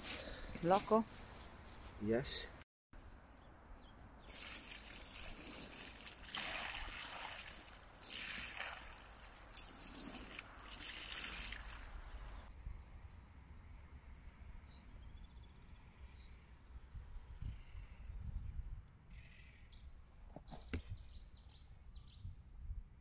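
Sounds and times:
water splashing onto fish: 0:04.2 - 0:12.5.

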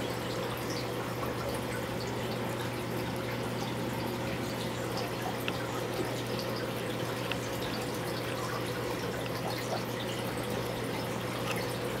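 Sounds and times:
aquarium water trickling: 0:00.0 - 0:12.0
small ticks: 0:04.6 - 0:12.0.

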